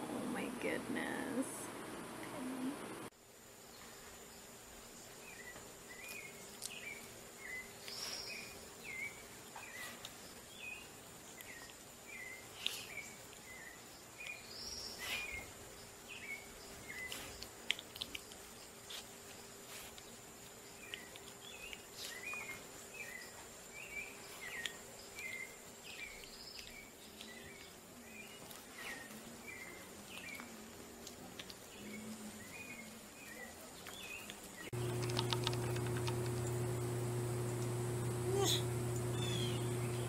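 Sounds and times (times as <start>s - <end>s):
steady low hum: 34.6s - 40.0s.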